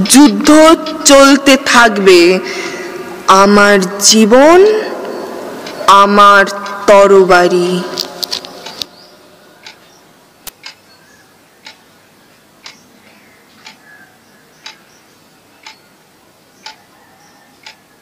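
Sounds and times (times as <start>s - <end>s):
quiet regular ticking: 5.0s - 7.0s, 8.0s - 17.9s.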